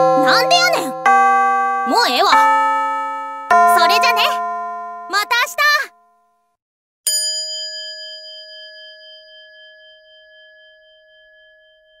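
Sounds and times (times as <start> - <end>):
struck metal bell ringing: 7.1 - 12.0.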